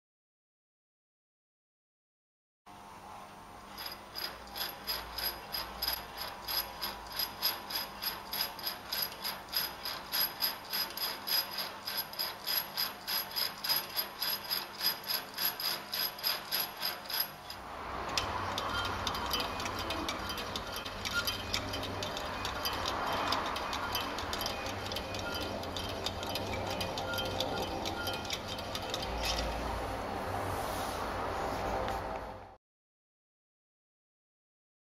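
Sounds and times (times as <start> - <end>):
wire crank clicking: 3.8 - 29.6.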